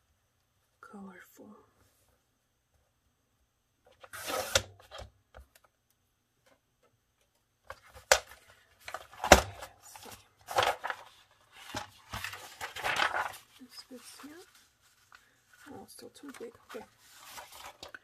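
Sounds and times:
paper trimmer slicing: 4.1 - 4.7
paper rustling: 7.7 - 18.0.

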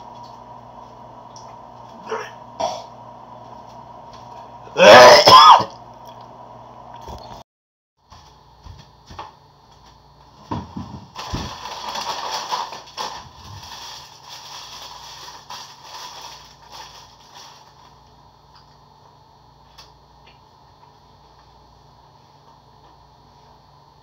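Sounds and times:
paper wrapper crinkling: 11.1 - 18.1.

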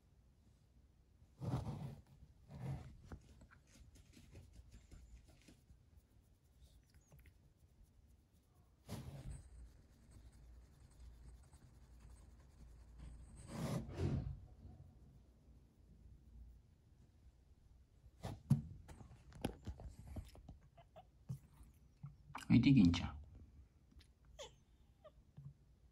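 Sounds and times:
sleeve brushing woven fabric: 1.4 - 14.0
hand rubbing cat fur: 1.4 - 17.2.

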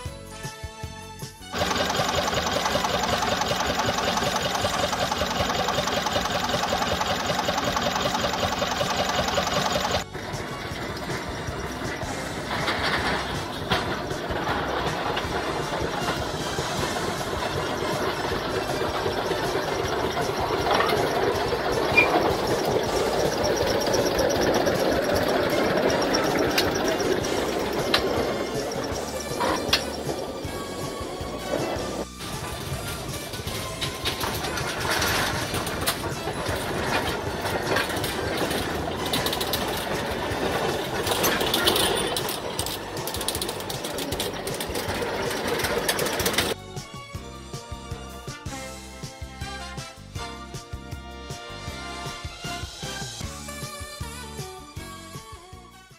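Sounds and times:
diesel locomotive engine running: 1.2 - 55.2
wheels and wagons rattling on track: 1.4 - 50.8
high squeak: 18.6 - 32.0.

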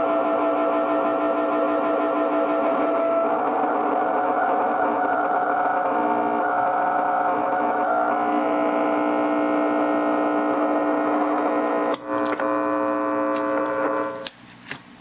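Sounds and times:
distortion pedal drone: 0.0 - 15.0.

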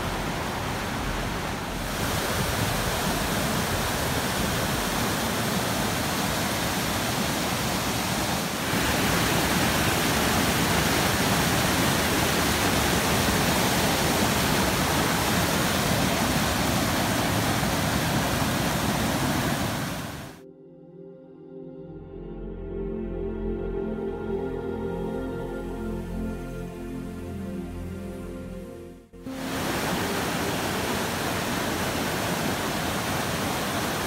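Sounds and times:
water rushing down waterfall: 0.0 - 20.4, 29.2 - 34.0.

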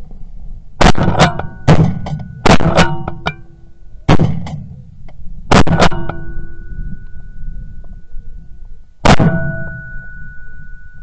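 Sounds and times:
struck hits with ringing chords: 0.8 - 4.7, 5.5 - 8.1, 9.0 - 11.0.

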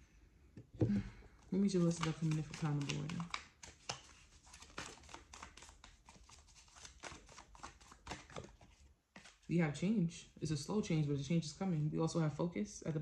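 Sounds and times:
cards being shuffled: 1.6 - 9.5.

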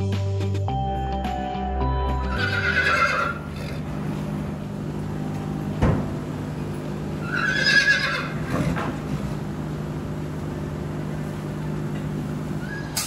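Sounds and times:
horse whinnying: 2.2 - 3.9, 7.2 - 8.8
steady low hum: 3.4 - 7.4, 8.2 - 13.0.

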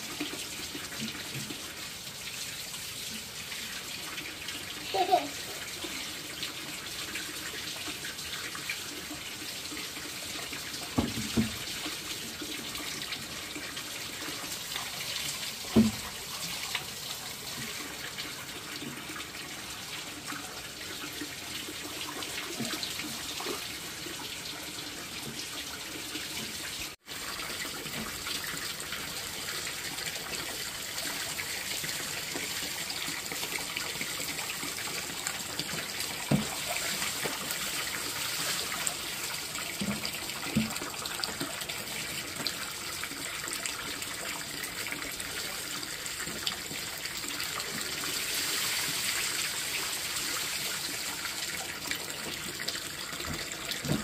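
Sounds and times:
tap water running into sink: 0.0 - 54.0.

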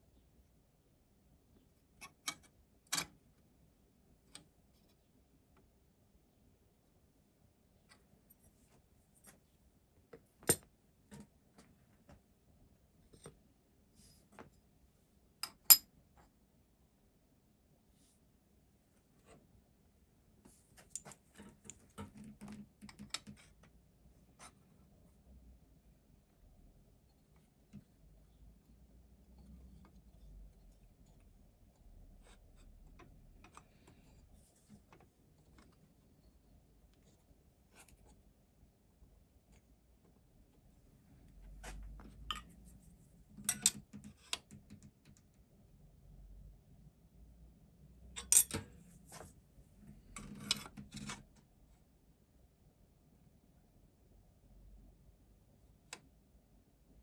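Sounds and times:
faint metal clicks and taps: 20.4 - 23.8, 41.6 - 42.7
metal parts clicking and clinking: 48.2 - 48.7.

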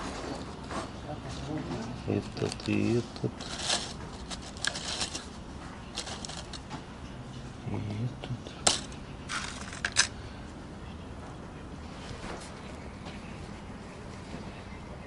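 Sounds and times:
light rustling of small items: 0.0 - 7.5, 8.2 - 10.5.

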